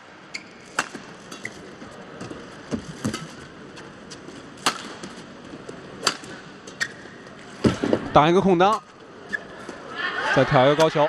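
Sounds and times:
low hall ambience: 0.0s - 11.0s
rackets striking shuttlecock: 4.6s - 7.0s.

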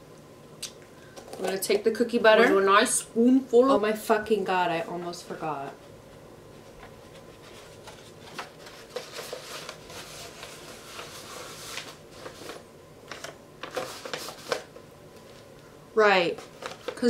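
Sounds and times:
paper hat rustling and crinkling: 4.7s - 15.5s, 16.2s - 17.0s.

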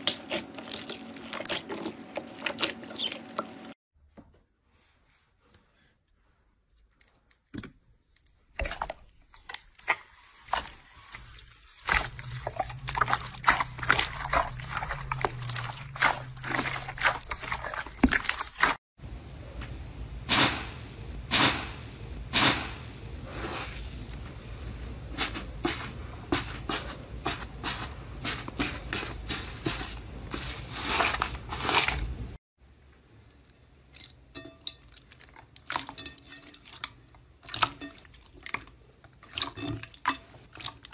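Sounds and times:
slime crackling and squelching: 8.4s - 18.8s, 27.7s - 32.4s.

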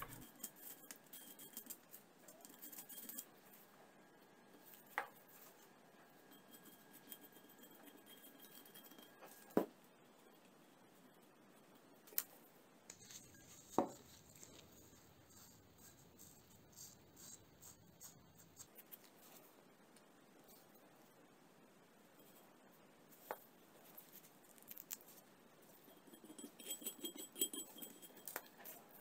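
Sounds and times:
metal spatula scraping: 0.0s - 3.7s, 4.6s - 9.6s, 12.9s - 18.9s, 25.8s - 29.0s
spatula tapping metal: 25.9s - 28.6s.

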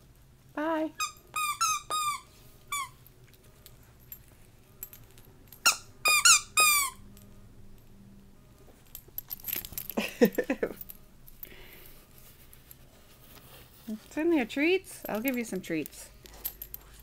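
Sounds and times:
squeaky toy squeaking: 1.0s - 3.0s, 5.6s - 7.0s.

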